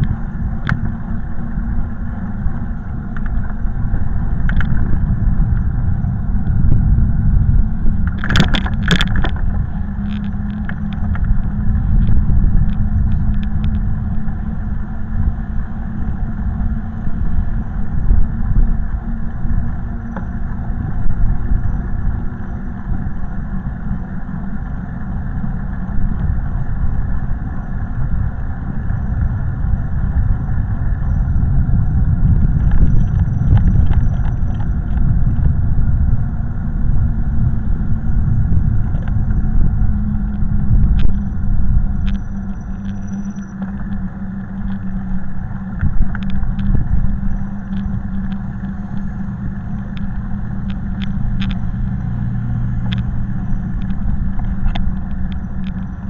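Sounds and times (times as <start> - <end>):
steady low hum: 0.0 - 56.0
wind and road noise rumble: 0.0 - 56.0
clicks and rattles: 8.0 - 13.8.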